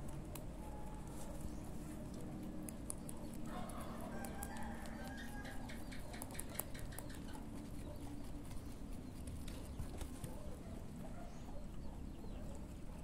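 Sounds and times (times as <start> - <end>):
rabbits chewing leaf: 0.0 - 13.0.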